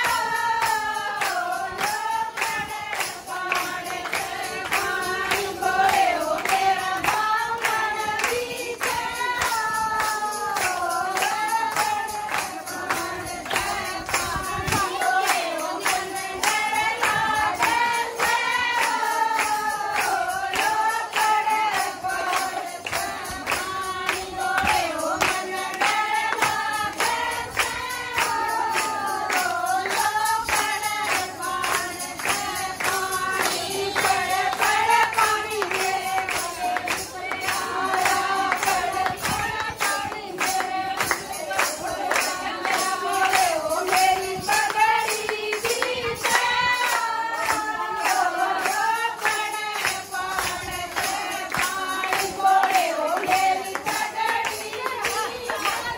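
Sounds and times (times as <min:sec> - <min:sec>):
hand-clapping: 0:00.0 - 0:55.9
women singing in unison: 0:00.0 - 0:55.9.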